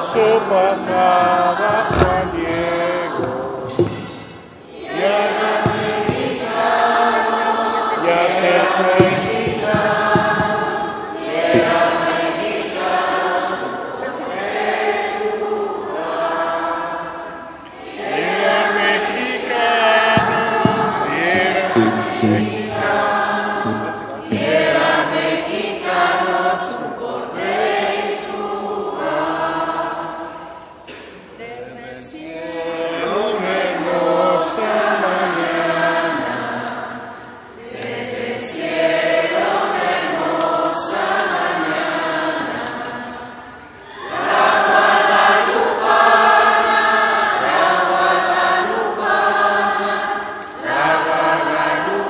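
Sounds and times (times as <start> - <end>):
man singing into microphone: 0.0 - 4.1, 19.5 - 24.8
congregation singing a hymn: 0.0 - 52.0.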